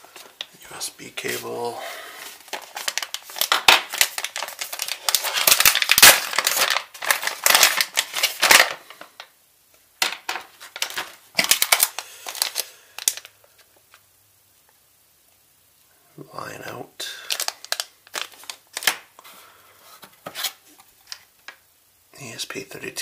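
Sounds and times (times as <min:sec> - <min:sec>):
plastic bag crinkling: 0:00.0 - 0:09.3, 0:10.0 - 0:14.0, 0:17.0 - 0:19.2.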